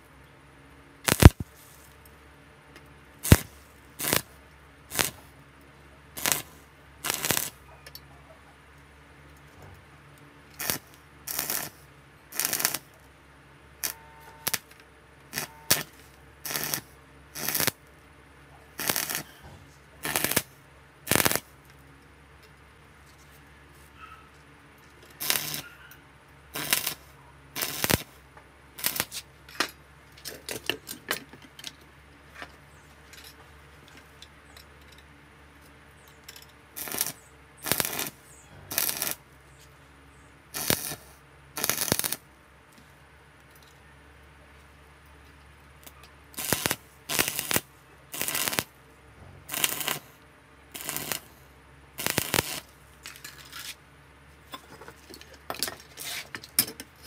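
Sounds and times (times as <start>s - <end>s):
welding arc crackling: 1.0s - 2.0s, 3.2s - 5.3s, 6.1s - 7.7s, 10.6s - 13.0s, 13.8s - 17.9s, 18.7s - 21.6s, 25.1s - 25.8s, 26.5s - 28.2s, 28.8s - 29.3s, 36.7s - 39.3s, 40.5s - 42.2s, 45.8s - 51.4s, 52.0s - 53.2s.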